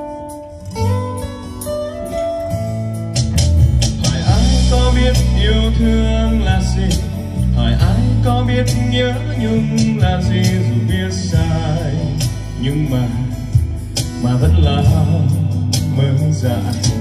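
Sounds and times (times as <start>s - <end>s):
band playing bass guitar and drums: 0.0s - 17.0s
man singing into a microphone: 4.0s - 17.0s.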